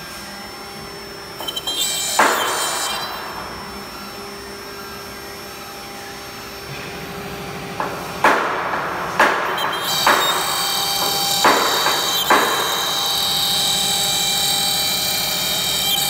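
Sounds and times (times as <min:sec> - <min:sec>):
router spindle whine: 0:00.0 - 0:07.7, 0:09.3 - 0:16.0
bit plunging into wood: 0:08.2 - 0:13.5.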